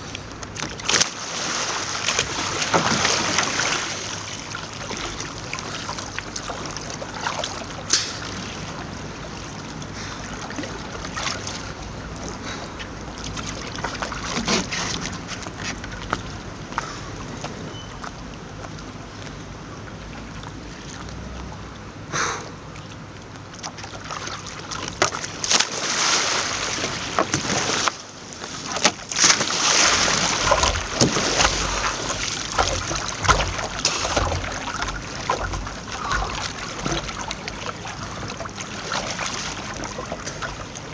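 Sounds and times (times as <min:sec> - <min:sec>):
sharp water splashes: 0:00.0 - 0:16.5, 0:22.9 - 0:40.9
water sloshing against hull: 0:00.0 - 0:40.9
kayak paddle strokes: 0:12.3 - 0:17.0, 0:23.5 - 0:40.9.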